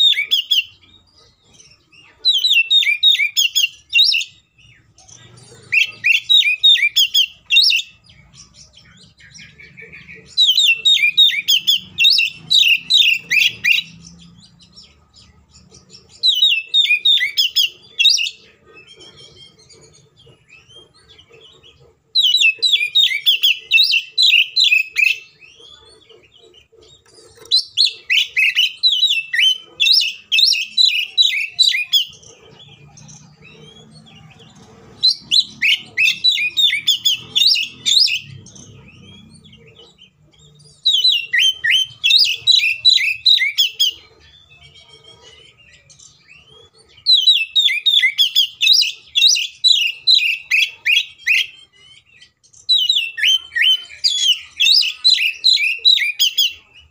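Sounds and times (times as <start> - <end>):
bird singing whistled phrases: 2.3 - 4.6, 16.1 - 18.4, 40.6 - 44.0, 46.4 - 56.9.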